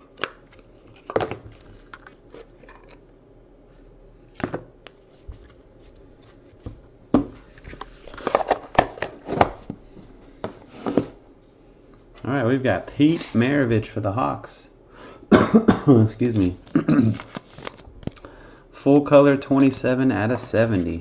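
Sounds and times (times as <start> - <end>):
cardboard box and cards handled: 16.2 - 18.2.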